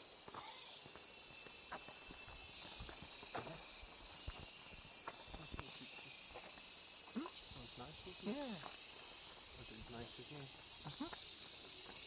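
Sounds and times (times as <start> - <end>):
footsteps on paved path: 0.0 - 7.3, 8.5 - 9.6, 10.9 - 12.0
steady high-pitched hiss: 0.0 - 12.0.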